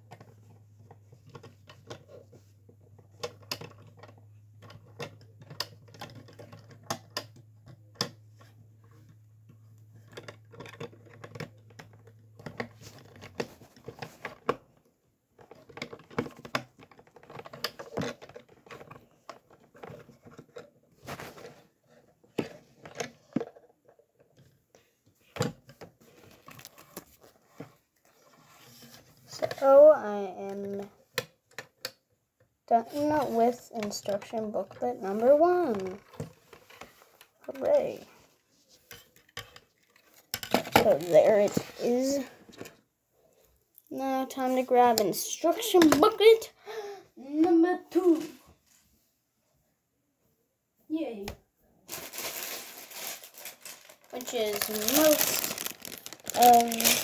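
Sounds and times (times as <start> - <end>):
rustling of plastic pieces: 25.6 - 29.7, 38.9 - 42.8, 51.9 - 57.0
plastic bricks clicking together: 53.6 - 57.0.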